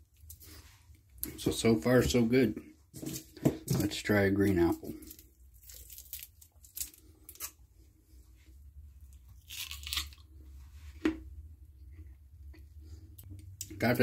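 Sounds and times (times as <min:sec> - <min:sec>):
plastic crinkling and tearing: 0:05.0 - 0:07.6.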